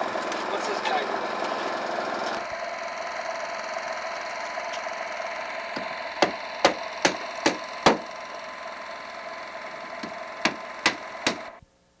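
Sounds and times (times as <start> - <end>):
electrical hum: 0.0 - 11.9
sharp knocks: 5.8 - 8.1, 10.0 - 11.5.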